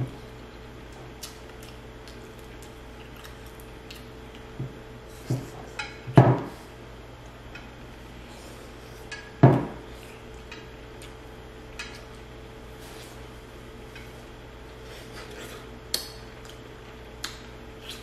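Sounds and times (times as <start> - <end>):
tableware knocking and clattering: 9.4 - 9.8.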